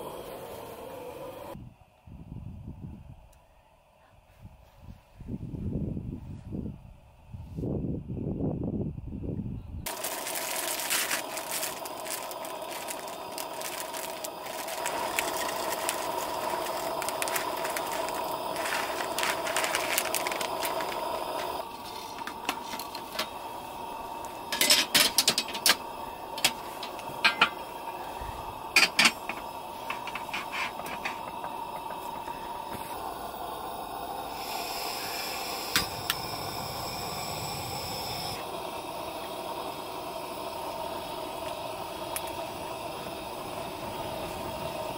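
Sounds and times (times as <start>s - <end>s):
gas burner running: 0.0s - 1.6s, 9.9s - 44.9s
spoon scraping metal pot: 28.8s - 31.4s.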